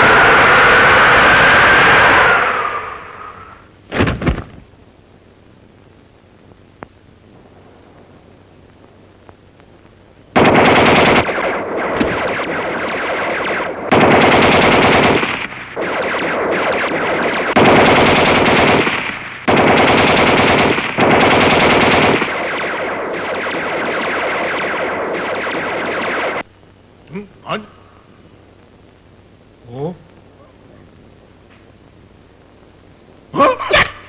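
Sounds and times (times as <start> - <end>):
machine guns firing bursts: 10.4 - 26.4.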